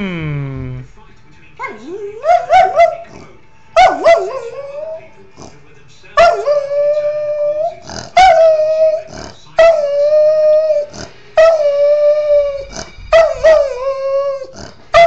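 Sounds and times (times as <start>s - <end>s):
dog howling: 6.2s - 15.0s.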